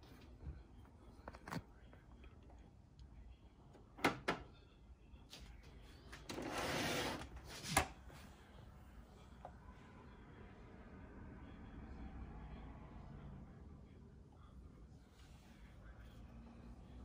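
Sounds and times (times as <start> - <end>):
plastic sliding scrape: 6.3 - 7.9.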